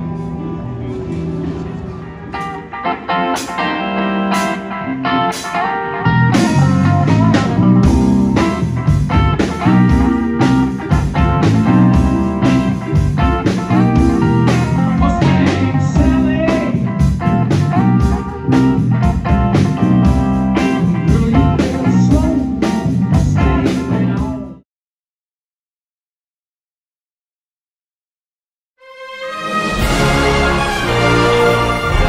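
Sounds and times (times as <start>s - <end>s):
electric guitars: 0.0s - 24.6s
drum kit steady beat: 6.3s - 24.6s, 29.8s - 32.0s.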